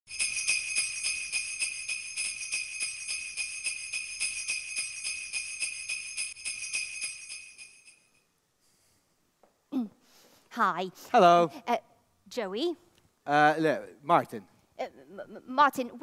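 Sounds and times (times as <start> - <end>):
sleigh bells shaking: 0.1 - 8.2.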